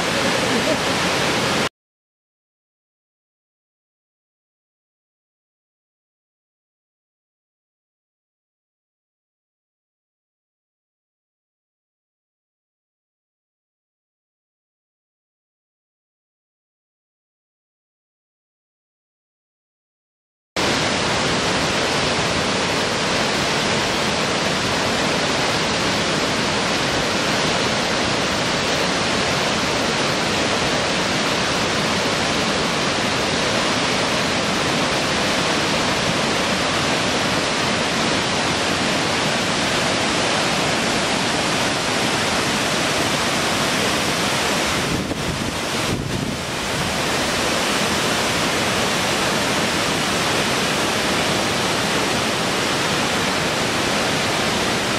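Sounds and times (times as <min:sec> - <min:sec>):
river rapids and waterfall rushing: 0:00.0 - 0:01.7, 0:20.6 - 0:54.9.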